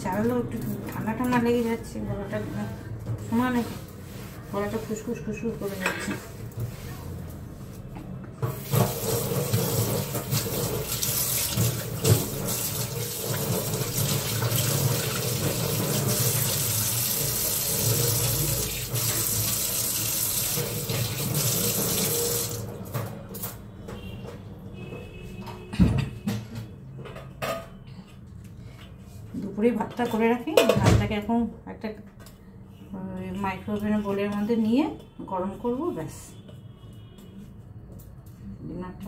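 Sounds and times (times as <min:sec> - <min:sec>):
tap water running into sink: 0:08.4 - 0:22.8.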